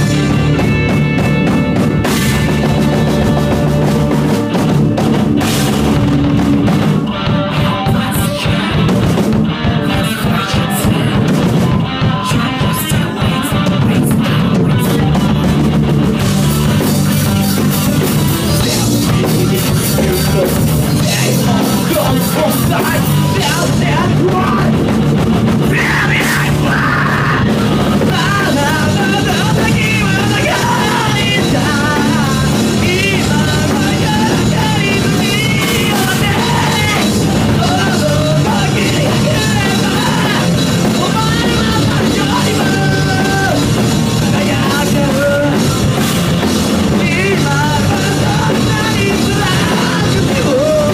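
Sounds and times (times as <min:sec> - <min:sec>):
drum kit: 0:00.0 - 0:50.9
electric bass: 0:00.0 - 0:50.9
electric guitar: 0:00.0 - 0:50.9
man singing: 0:07.1 - 0:15.7, 0:16.4 - 0:24.9, 0:25.6 - 0:50.9.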